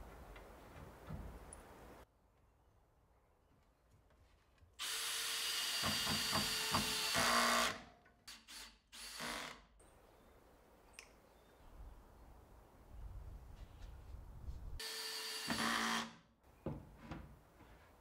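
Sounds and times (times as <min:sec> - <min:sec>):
cordless drill boring into wood: 0:04.8 - 0:09.6, 0:14.8 - 0:16.2.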